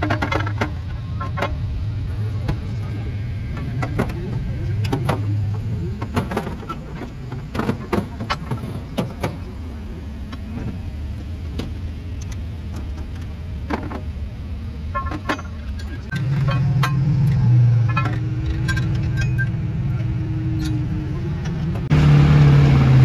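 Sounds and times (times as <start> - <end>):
low engine rumble: 0.0 - 23.0
metal weights clanking: 14.9 - 21.6.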